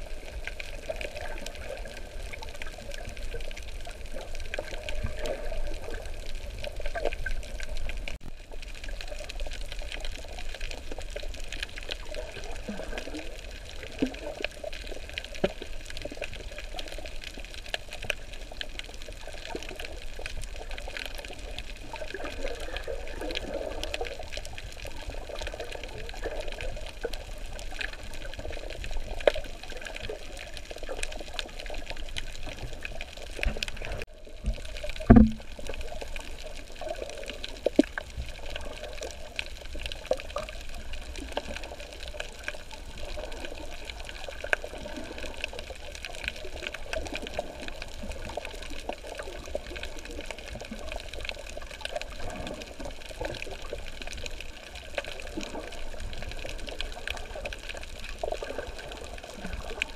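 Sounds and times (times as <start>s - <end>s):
water moving around camera: 0.0s - 59.9s.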